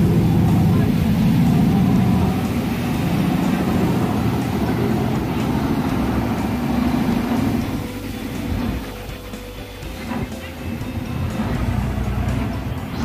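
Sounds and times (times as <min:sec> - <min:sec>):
boat engine drone: 0:00.0 - 0:13.0.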